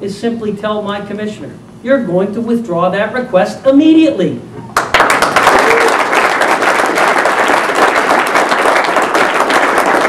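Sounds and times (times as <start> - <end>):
crowd applauding: 4.8 - 10.0.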